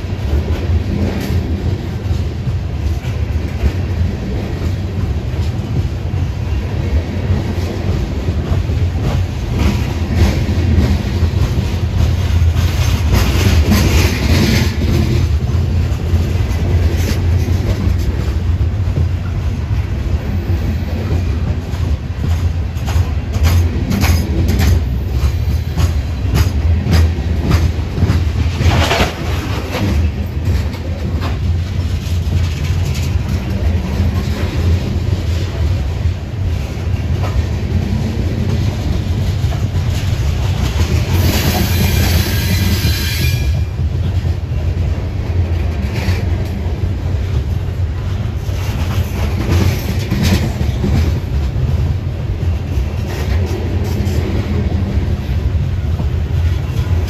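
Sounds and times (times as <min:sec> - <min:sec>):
freight train rumbling past: 0:00.0 - 0:57.0
wheels clacking over rail joints: 0:00.1 - 0:57.0
metallic wheel screech: 0:41.5 - 0:43.6.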